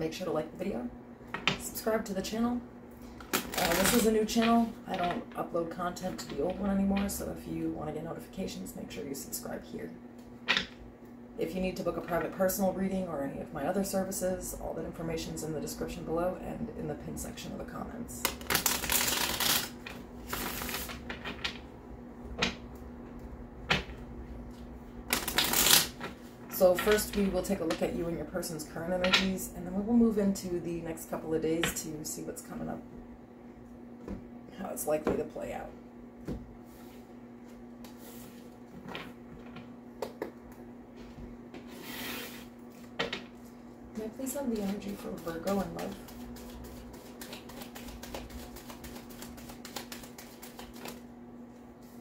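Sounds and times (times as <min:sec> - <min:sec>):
faint steady hum: 0:00.0 - 0:52.0
cards being shuffled: 0:03.2 - 0:04.1, 0:18.2 - 0:21.6, 0:25.1 - 0:26.2, 0:44.4 - 0:51.0.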